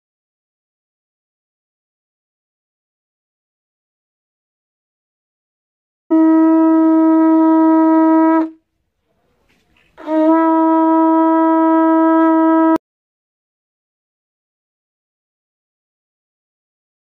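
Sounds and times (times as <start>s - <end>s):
conch shell trumpet blasts: 6.1s - 8.6s, 10.0s - 12.8s.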